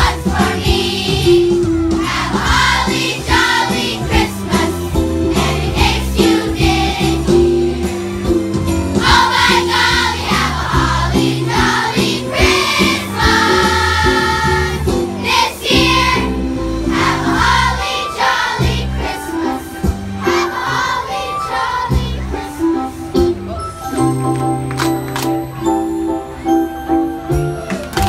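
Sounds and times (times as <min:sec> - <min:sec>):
children's choir singing: 0:00.0 - 0:07.9, 0:09.0 - 0:23.0
instrumental accompaniment: 0:00.0 - 0:28.0.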